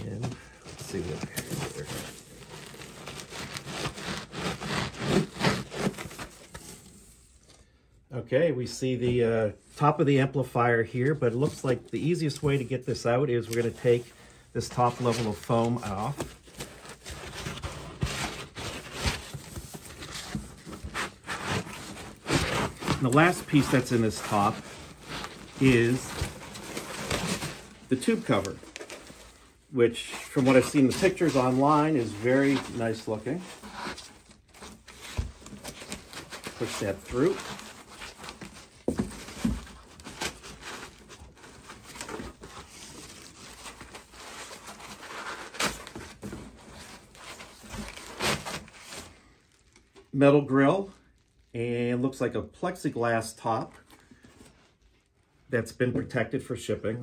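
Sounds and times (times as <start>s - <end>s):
foam scraping against cardboard: 0.2s - 7.0s, 14.9s - 29.4s, 30.0s - 46.3s.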